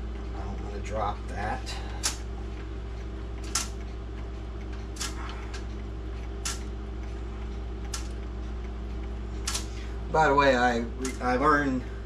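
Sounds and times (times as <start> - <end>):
pendulum clock ticking: 0.0 - 12.0
steady low hum: 0.0 - 12.0.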